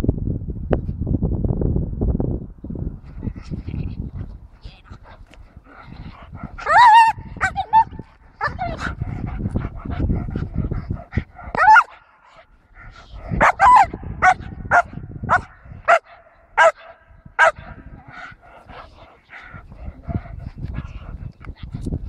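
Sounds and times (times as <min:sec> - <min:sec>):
dog barking: 0:06.6 - 0:09.0, 0:11.6 - 0:12.0, 0:13.4 - 0:17.8.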